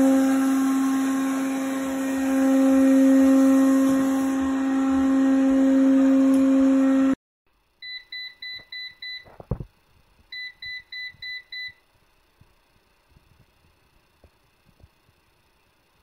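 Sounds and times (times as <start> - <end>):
robot vacuum humming: 0.0 - 7.2
short electronic beeps: 10.3 - 11.8.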